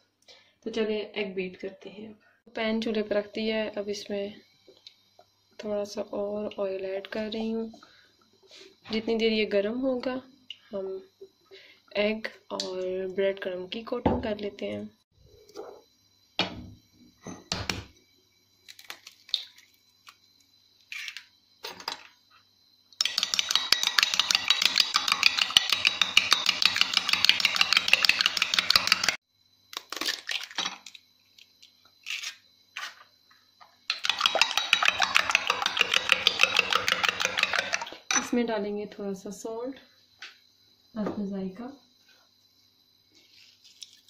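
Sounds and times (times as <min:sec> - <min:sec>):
fork beating eggs in glass bowl: 0:23.0 - 0:29.2, 0:33.9 - 0:38.0.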